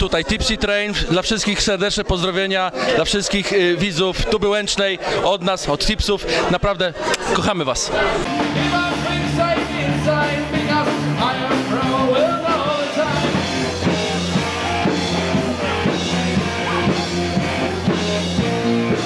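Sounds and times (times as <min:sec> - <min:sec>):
hard rock band playing: 0:08.2 - 0:19.0.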